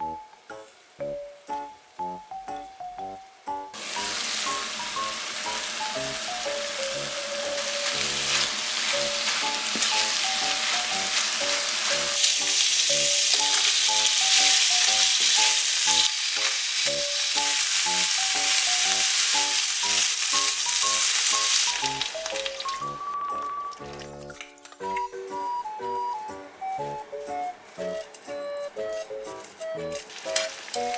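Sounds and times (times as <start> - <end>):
food sizzling in a frying pan: 3.7 - 23.2, 29.9 - 30.9.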